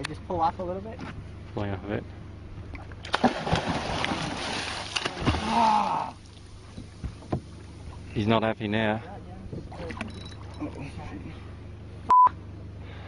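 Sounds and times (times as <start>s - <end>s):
fish thrashing and splashing water: 3.1s - 7.0s.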